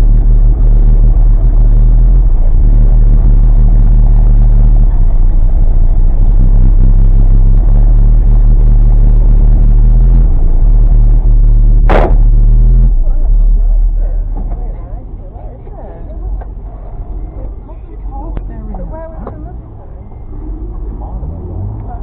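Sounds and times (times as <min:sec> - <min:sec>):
car engine idling: 0:00.0 - 0:22.0
short sharp noise burst: 0:11.8 - 0:12.6.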